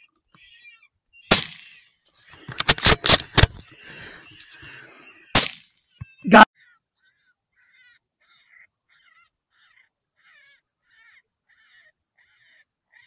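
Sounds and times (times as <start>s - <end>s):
rifle shots: 1.3s - 1.8s, 5.4s - 5.7s.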